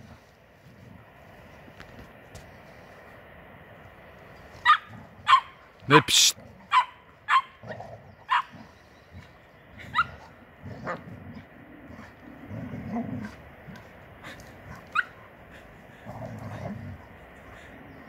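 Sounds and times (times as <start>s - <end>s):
dogs low rumbling: 0.0s - 2.8s, 4.4s - 18.0s
dogs barking and yipping: 4.6s - 5.8s, 6.6s - 11.1s, 13.2s - 16.1s.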